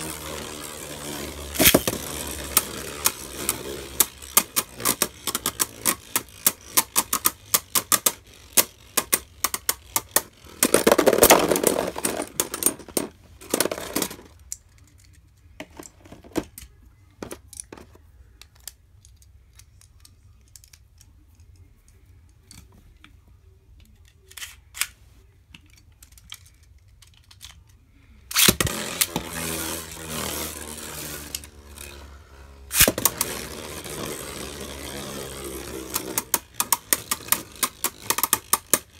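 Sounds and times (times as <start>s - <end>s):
spinning tops clattering together: 0.0s - 15.0s, 28.3s - 38.9s
spinning tops whirring and scraping: 0.0s - 17.9s, 28.2s - 38.9s.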